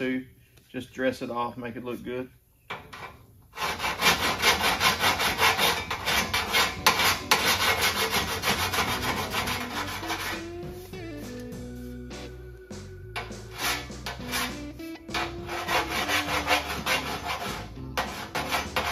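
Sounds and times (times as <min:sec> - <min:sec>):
hand file rasping on steel: 0:03.5 - 0:10.6, 0:13.2 - 0:18.9
music: 0:05.2 - 0:18.9.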